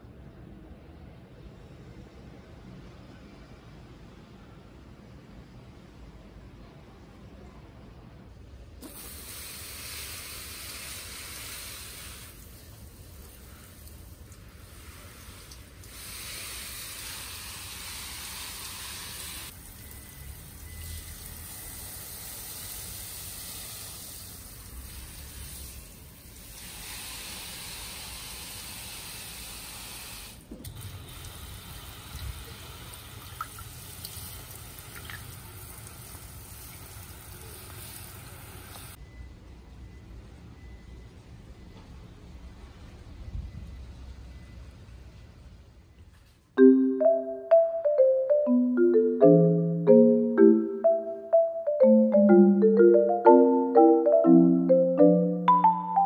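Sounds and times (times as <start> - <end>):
hose nozzle spraying water: 13.4 - 19.6.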